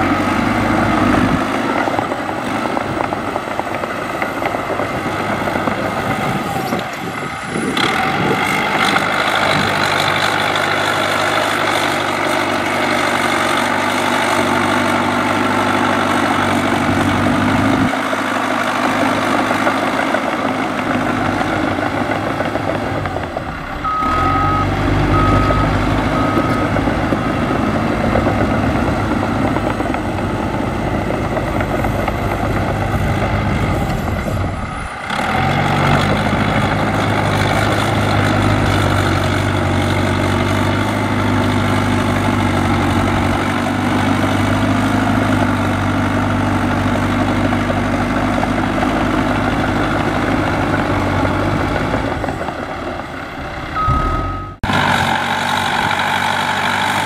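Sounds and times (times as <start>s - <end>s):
bulldozer diesel engine: 0.0s - 57.0s
reversing alarm beeps: 23.9s - 27.4s, 53.8s - 54.7s.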